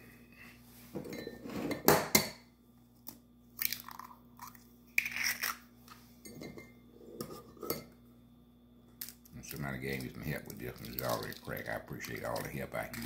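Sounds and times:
eggshell crunching: 3.6 - 5.6, 9.0 - 13.0.

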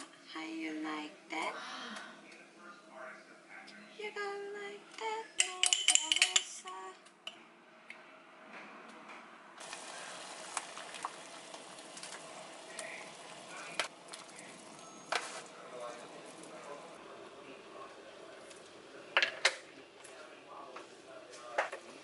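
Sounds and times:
metal spoon clinking ceramic bowl: 5.4 - 6.5
water boiling in a saucepan: 9.6 - 19.2.

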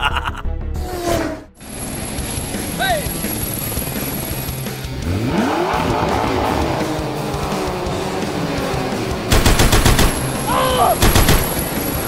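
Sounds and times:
background music: 0.0 - 12.0
vehicle engine revving: 0.9 - 12.0.

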